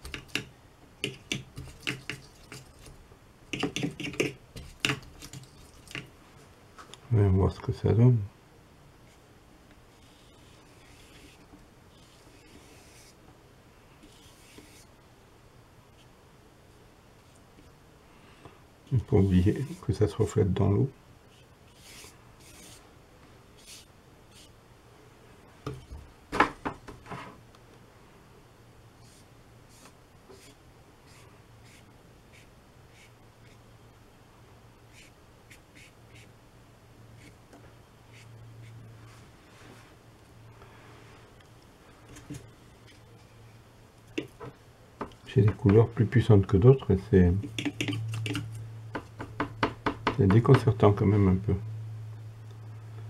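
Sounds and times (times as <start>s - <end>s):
paintbrush tapping in paint pans: 3.5s - 6.1s, 44.2s - 45.9s, 47.4s - 50.8s
soft brush swishes: 38.1s - 40.1s.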